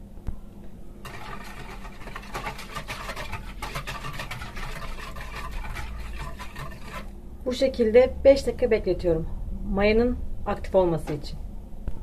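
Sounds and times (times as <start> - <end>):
whisk beating liquid in bowl: 1.0 - 7.1.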